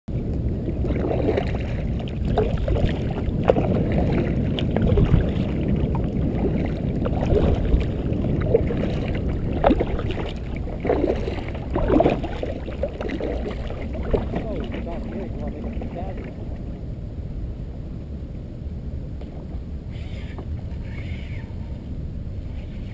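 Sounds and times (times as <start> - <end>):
paddle splashes: 0.1 - 16.8
water lapping against kayak hull: 0.1 - 16.9
wind rumble on microphone: 0.1 - 22.9.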